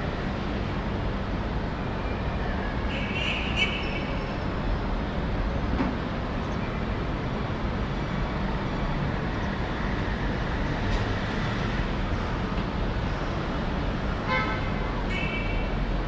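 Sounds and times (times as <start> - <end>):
distant city traffic: 0.0 - 16.0.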